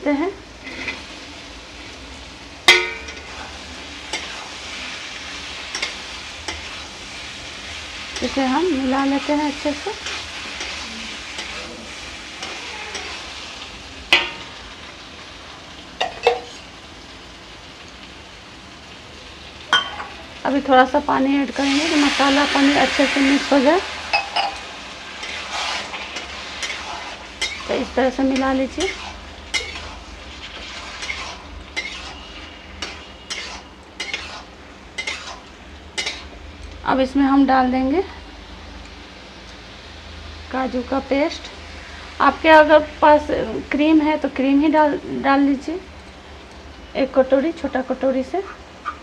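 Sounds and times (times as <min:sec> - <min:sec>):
paneer sizzling in a pan: 0:00.0 - 0:49.0
metal spatula scraping a pan: 0:00.6 - 0:01.2, 0:02.7 - 0:05.0, 0:05.7 - 0:06.9, 0:12.4 - 0:13.3, 0:25.2 - 0:36.4
metal spoon knocking against pan: 0:02.7 - 0:03.2.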